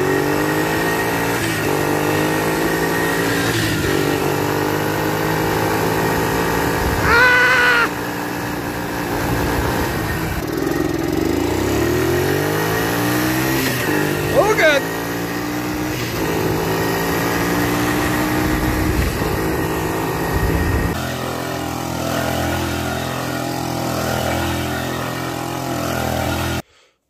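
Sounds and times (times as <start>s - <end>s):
small atv engine running: 0.0s - 26.9s.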